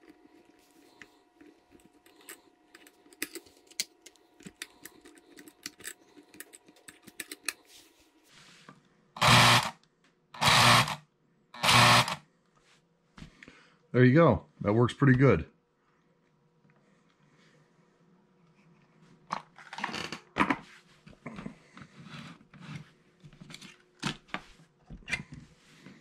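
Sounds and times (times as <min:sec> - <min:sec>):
faint steady hum: 0:00.0 - 0:26.0
loud solenoid buzzes: 0:09.2 - 0:09.8, 0:10.4 - 0:11.0, 0:11.6 - 0:12.2.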